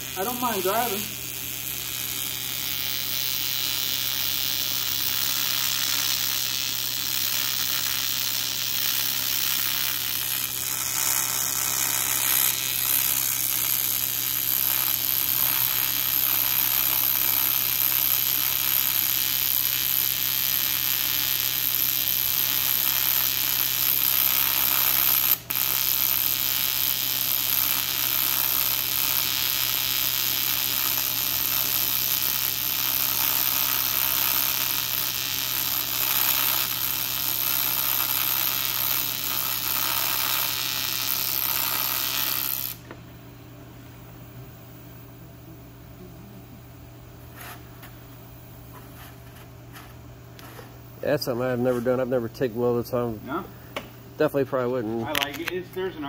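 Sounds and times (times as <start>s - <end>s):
welding arc buzzing: 0.0s - 43.0s, 43.9s - 56.0s
constant low hum: 42.7s - 56.0s.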